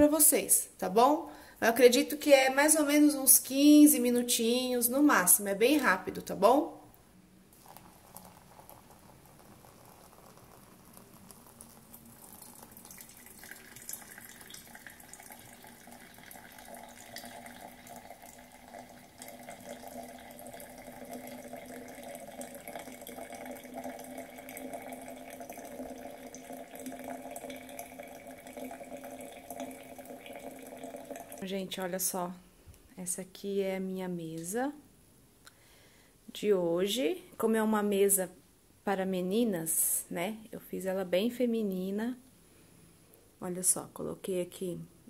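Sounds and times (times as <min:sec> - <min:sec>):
water pouring from kettle: 0:07.6 - 0:31.5.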